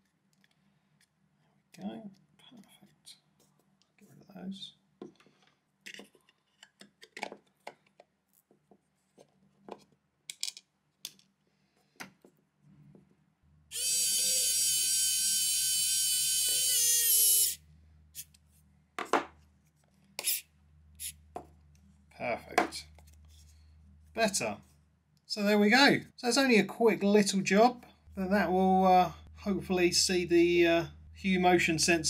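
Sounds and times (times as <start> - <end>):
electric screwdriver whirring: 13.7 - 17.6.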